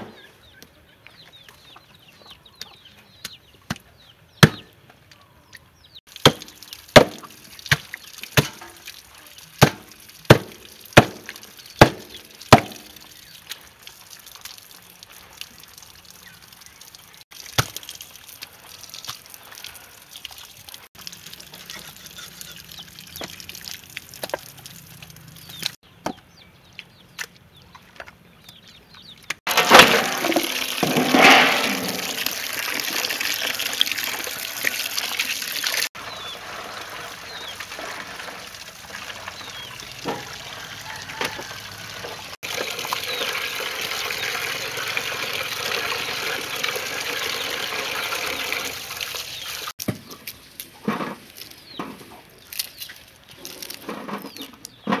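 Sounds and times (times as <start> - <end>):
cleaver chopping on wooden block: 4.4 - 4.7, 6.2 - 7.8, 9.6 - 12.9
water splashing in metal basin: 6.1 - 25.8, 29.5 - 49.8.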